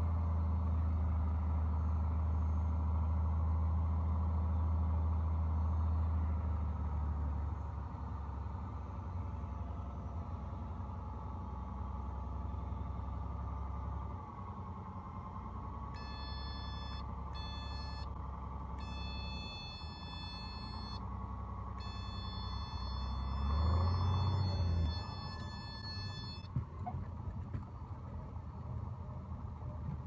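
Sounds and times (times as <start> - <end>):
high electronic tone: 16.0 - 18.1, 18.8 - 21.0, 21.8 - 26.5
aircraft engine droning: 21.8 - 26.5.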